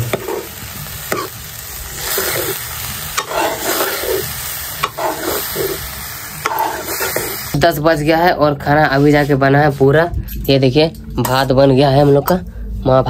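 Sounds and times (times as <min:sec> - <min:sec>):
metal ladle scraping a pan: 0:00.0 - 0:07.6
greens sizzling in oil: 0:00.0 - 0:07.7.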